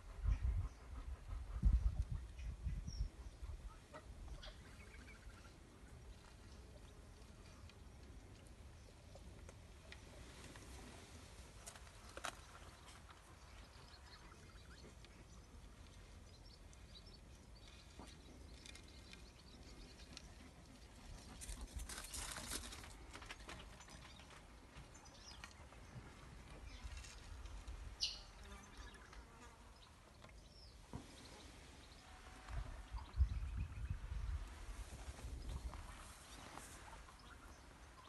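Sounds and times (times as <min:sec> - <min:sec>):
small clicks and rustles: 0:11.5 - 0:13.3, 0:21.1 - 0:24.5.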